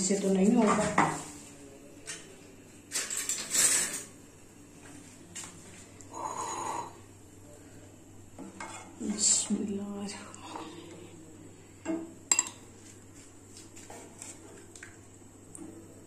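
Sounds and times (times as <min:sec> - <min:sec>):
kitchen utensils clattering: 0:02.9 - 0:04.2.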